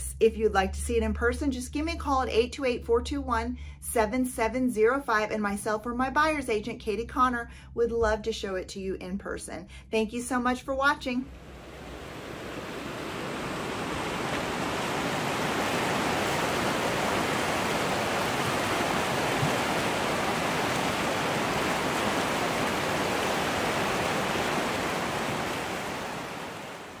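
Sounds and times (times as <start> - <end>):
river rushing over rapids: 11.3 - 27.0.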